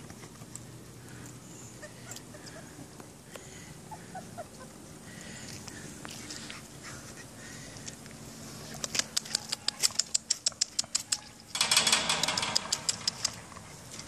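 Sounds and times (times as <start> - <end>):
puppies scratching and scraping: 0.0 - 3.0, 4.6 - 14.0
claws clicking on concrete: 8.7 - 14.0.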